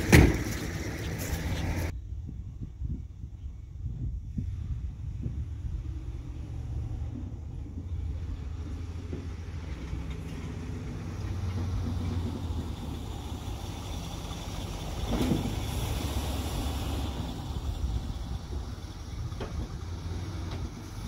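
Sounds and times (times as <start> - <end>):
short thump: 0.0 - 0.7
car engine rumbling: 0.0 - 21.0.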